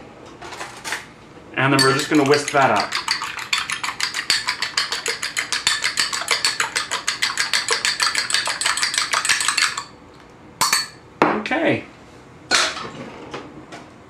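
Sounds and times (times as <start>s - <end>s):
whisk clicking against ceramic bowl: 1.8s - 9.9s.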